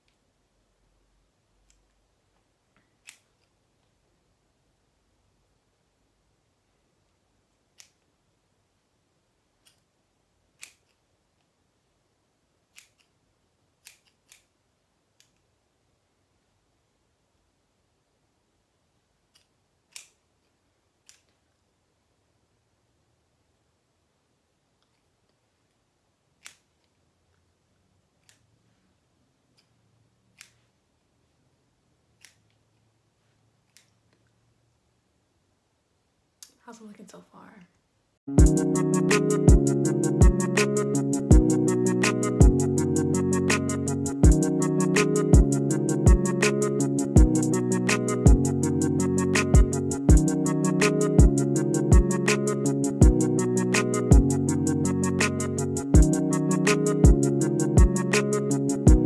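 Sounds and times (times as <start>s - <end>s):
faint scissor clicks: 2.9s - 3.5s, 10.6s - 11.0s, 12.7s - 13.2s, 13.8s - 14.5s, 19.3s - 20.2s, 21.0s - 21.4s, 30.4s - 30.6s
scissors snipping hair: 3.0s - 3.5s, 10.6s - 11.0s, 12.7s - 13.1s, 13.8s - 14.5s.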